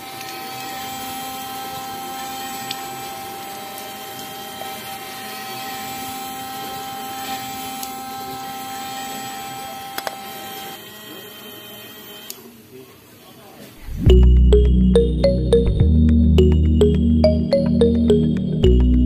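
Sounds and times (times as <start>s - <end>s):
small electric motor whine: 0.0s - 12.5s.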